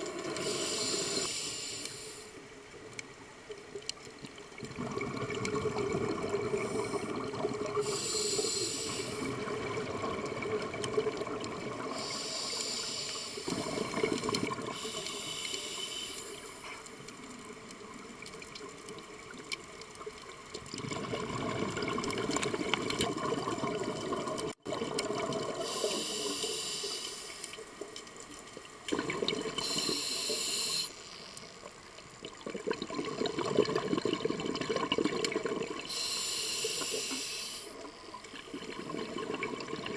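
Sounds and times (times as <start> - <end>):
scuba regulator breathing: 0.3 - 2.4, 6.4 - 9.5, 11.8 - 16.9, 25.6 - 27.7, 29.6 - 31.4, 35.8 - 37.9
steady underwater rush: 4.5 - 17.0, 20.7 - 27.9, 28.8 - 31.1, 32.3 - 39.9.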